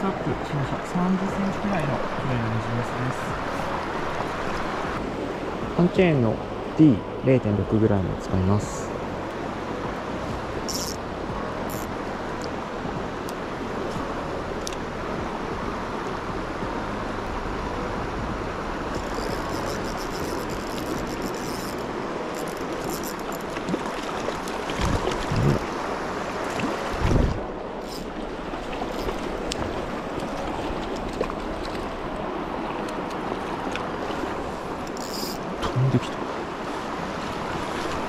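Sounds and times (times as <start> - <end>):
river running over stones: 0.0 - 6.8, 9.0 - 38.0
wind on microphone: 22.4 - 25.8, 26.5 - 32.6.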